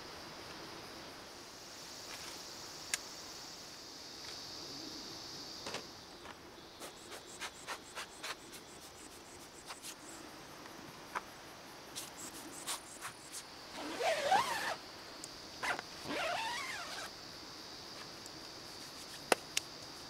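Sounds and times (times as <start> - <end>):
insect drone: 0.0 - 20.0
zipper on fabric tent: 13.7 - 14.8, 15.6 - 17.1.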